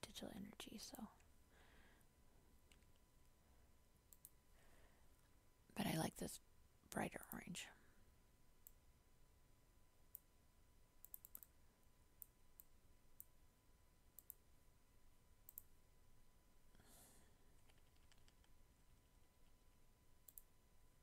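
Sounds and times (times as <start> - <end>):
computer mouse clicks: 2.7 - 3.0, 4.1 - 4.4, 8.6 - 8.8, 11.0 - 11.6, 12.2 - 13.3, 14.1 - 14.4, 15.4 - 15.7, 17.6 - 18.6, 20.2 - 20.5.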